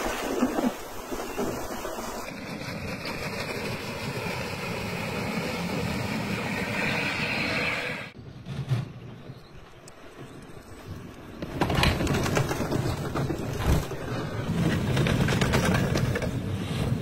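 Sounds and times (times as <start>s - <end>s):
high-pitched whine: 4.8s - 8.2s.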